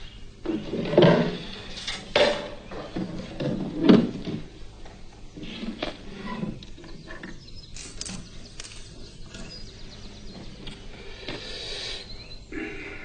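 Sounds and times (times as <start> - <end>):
objects clicking on table: 7.8 - 9.6.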